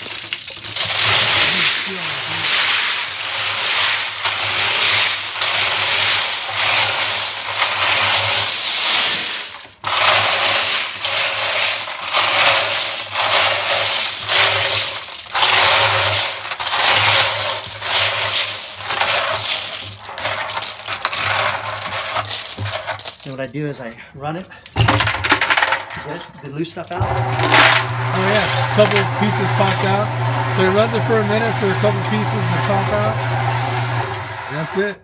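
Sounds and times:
metal cartridge cases jingling: 0:17.5 - 0:28.9.

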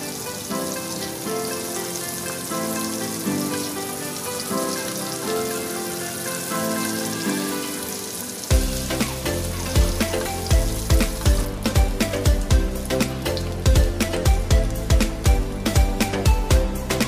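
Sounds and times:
butter sizzling in a frying pan: 0:00.0 - 0:13.8
background music: 0:00.0 - 0:17.0
steady beat: 0:08.5 - 0:17.0.

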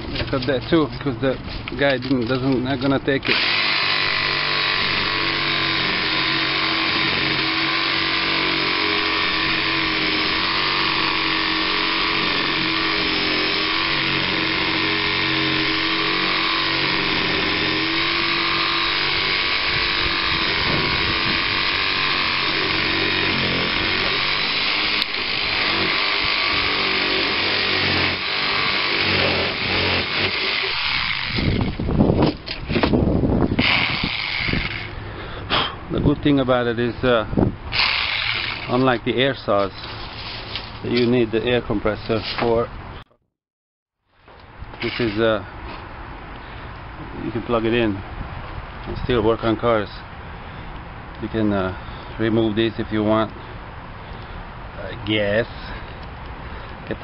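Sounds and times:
reciprocating saw cutting branches: 0:02.7 - 0:35.6, 0:36.3 - 0:42.6, 0:44.7 - 0:45.8.

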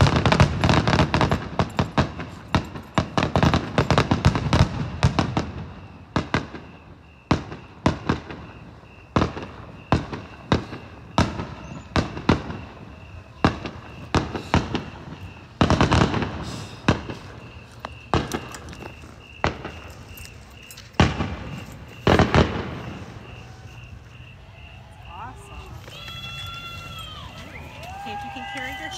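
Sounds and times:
fireworks bursting: 0:00.0 - 0:28.9.

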